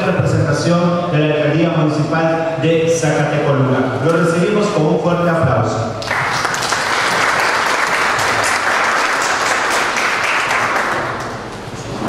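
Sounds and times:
audience applauding: 0:06.0 - 0:11.5.

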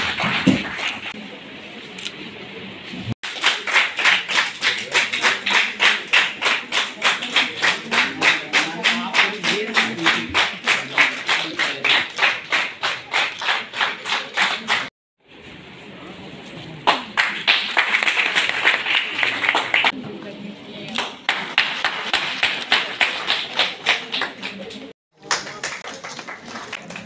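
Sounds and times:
audience rhythmic clapping: 0:00.0 - 0:01.2, 0:03.2 - 0:14.9, 0:16.8 - 0:20.0, 0:20.9 - 0:27.0.

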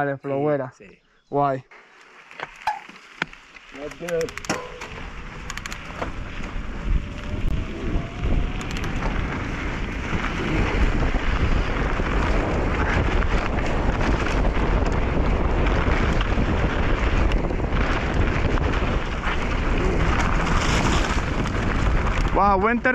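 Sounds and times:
bike tyres rolling on dirt: 0:01.7 - 0:22.9
bike clicks and knocks: 0:02.4 - 0:07.2, 0:08.4 - 0:09.5
wind rushing over microphone: 0:03.8 - 0:22.9.

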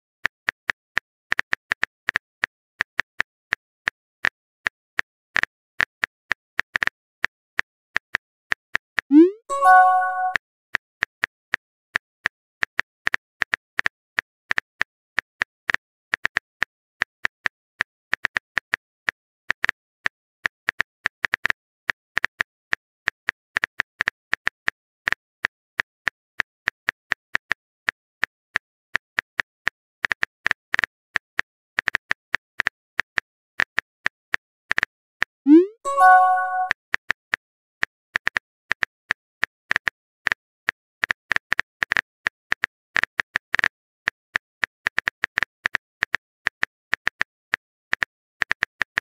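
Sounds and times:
keyboard tap clicks: 0:09.1 - 0:10.4, 0:35.5 - 0:36.7.

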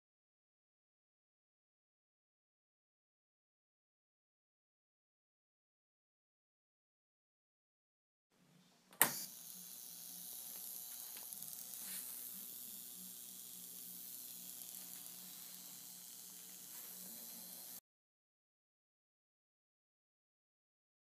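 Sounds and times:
low electrical buzz: 0:08.4 - 0:17.8
high-pitched corona discharge hiss: 0:09.0 - 0:17.8.

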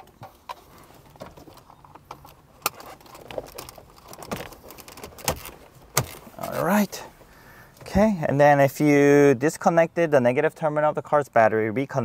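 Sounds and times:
plastic and metal clicks and rattling: 0:00.1 - 0:06.2.

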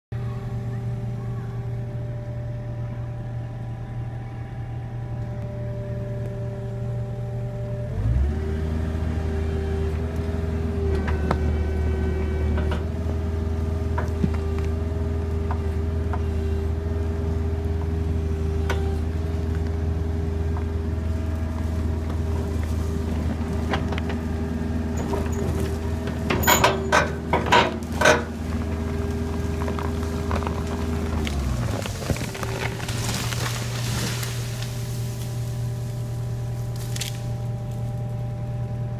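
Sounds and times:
excavator engine and hydraulics: 0:00.1 - 0:38.9
sharp cracks and knocks: 0:36.7 - 0:37.4.

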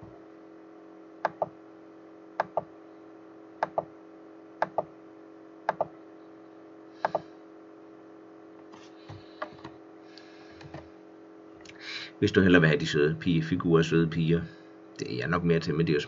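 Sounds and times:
steady low hum: 0:00.0 - 0:16.0
computer mouse button clicking: 0:02.4 - 0:02.7, 0:03.6 - 0:03.9, 0:05.7 - 0:05.9, 0:07.0 - 0:07.2.

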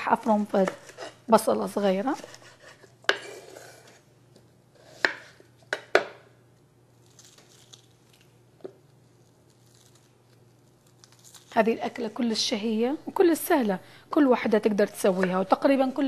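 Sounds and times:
onion skin rustling: 0:06.9 - 0:12.5.

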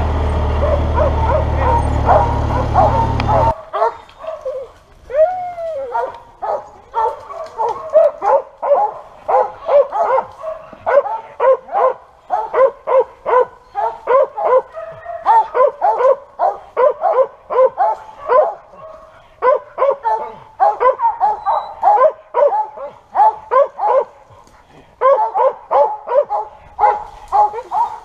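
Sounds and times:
dogs barking rapidly: 0:00.0 - 0:04.8, 0:05.9 - 0:28.0.

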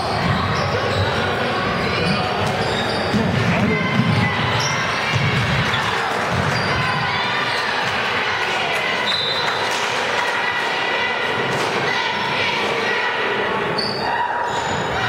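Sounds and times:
crowd chatter: 0:00.0 - 0:15.0
shoe squeaks: 0:00.2 - 0:03.2, 0:13.8 - 0:14.9
basketball bouncing on court: 0:03.0 - 0:06.8.

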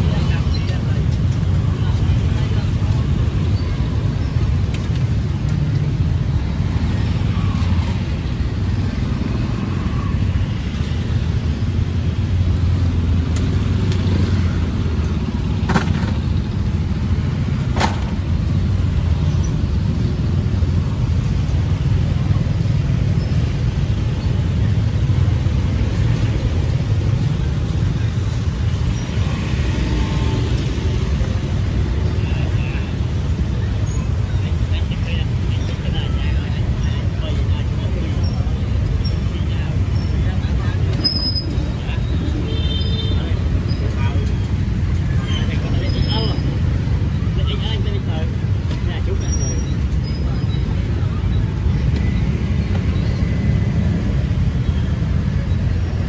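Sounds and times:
faint voices: 0:00.0 - 0:15.4
low traffic rumble: 0:00.0 - 0:56.0.

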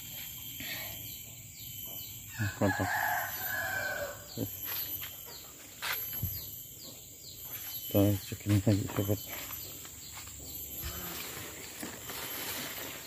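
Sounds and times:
faint high chirp: 0:00.0 - 0:13.0
rooster crowing: 0:02.3 - 0:04.4.

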